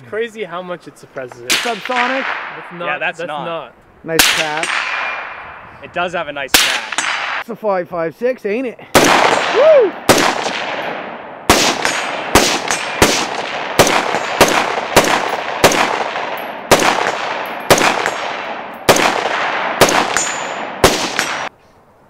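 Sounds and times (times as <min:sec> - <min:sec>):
rifle shots echoing: 0:01.5 - 0:02.9, 0:04.2 - 0:05.6, 0:06.5 - 0:07.4, 0:08.9 - 0:21.5
metallic ring of steel target: 0:20.1 - 0:21.4.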